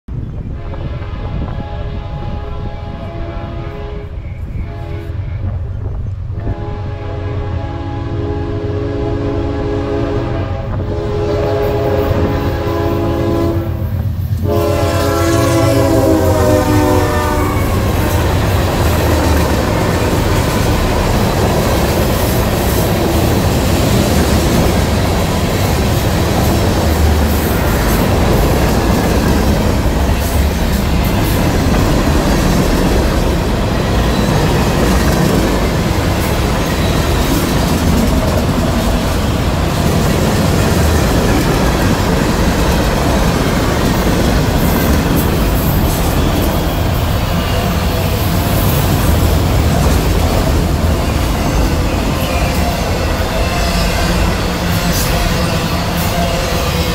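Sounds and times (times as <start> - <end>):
train air horn: 0.4 - 5.5, 6.4 - 21.2, 51.4 - 56.9
freight cars rumbling and clattering: 17.7 - 56.9.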